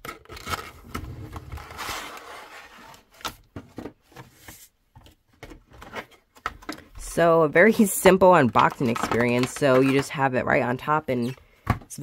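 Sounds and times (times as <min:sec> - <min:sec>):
cardboard scraping slide: 0:00.8 - 0:03.2.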